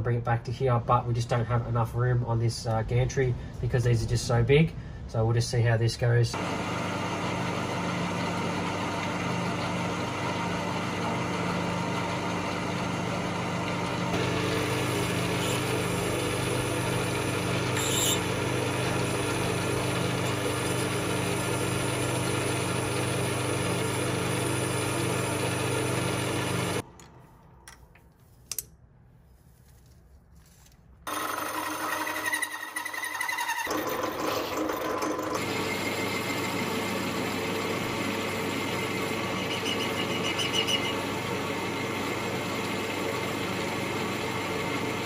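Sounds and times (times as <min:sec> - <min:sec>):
metal lathe motor humming: 0:06.4 - 0:26.8, 0:31.1 - 0:45.0.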